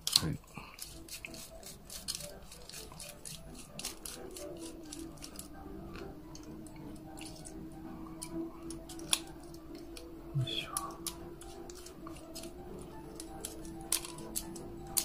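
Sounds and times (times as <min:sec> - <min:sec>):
screwdriver and tiny screws clicking: 0:00.0 - 0:05.6, 0:10.8 - 0:15.0.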